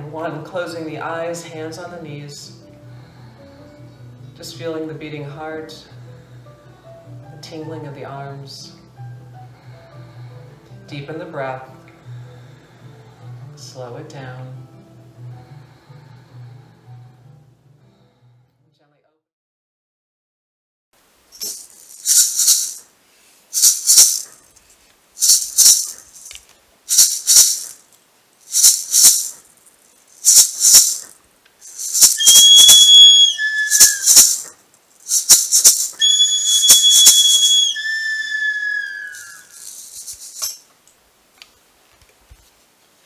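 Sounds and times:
hand rattle shaking: 0:21.3 - 0:22.8, 0:23.5 - 0:40.7
high sliding whistle tones: 0:31.9 - 0:34.5, 0:35.3 - 0:39.6.

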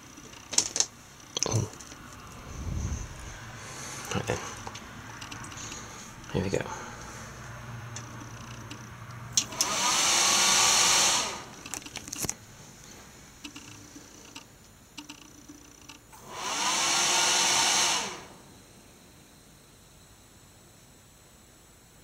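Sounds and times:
computer fans whining: 0:00.0 - 0:22.0.

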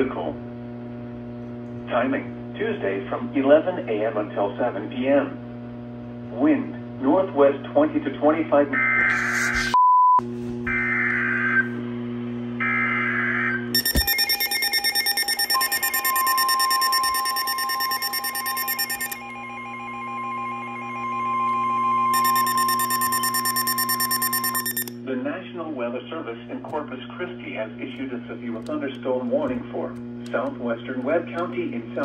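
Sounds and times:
steady warning alarm tone: 0:12.6 - 0:25.0
buzzy digital header bursts: 0:13.8 - 0:19.2, 0:22.2 - 0:24.9
pulsing alert beeping: 0:13.8 - 0:19.7, 0:22.1 - 0:24.9.

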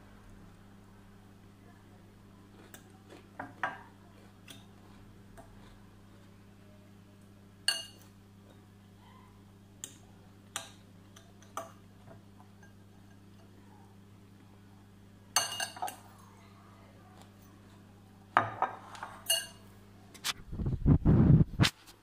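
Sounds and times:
faint hum: 0:00.0 - 0:22.0
fork clinking against glass bowl: 0:07.6 - 0:08.1, 0:15.4 - 0:16.0, 0:18.9 - 0:19.7.

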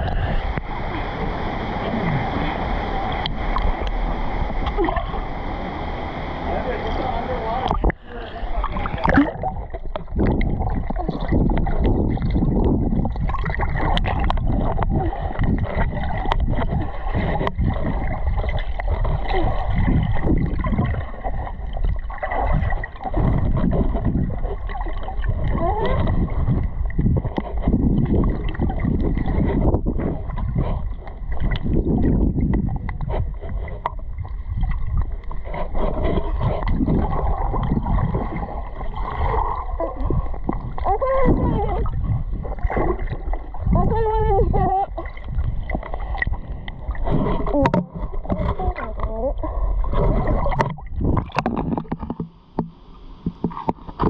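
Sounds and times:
water sloshing and gurgling: 0:00.0 - 0:54.0.

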